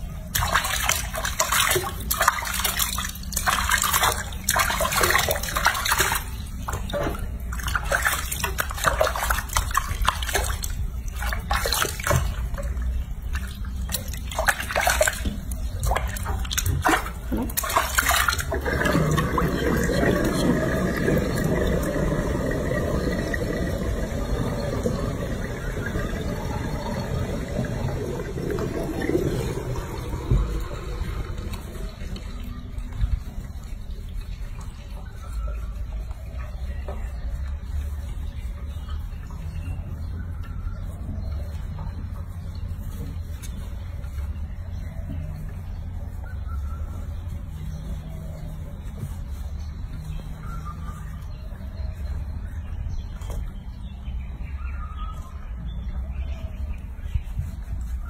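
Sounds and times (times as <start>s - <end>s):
water splashing in sink: 0.0s - 35.2s
dull rushing noise: 18.5s - 33.6s.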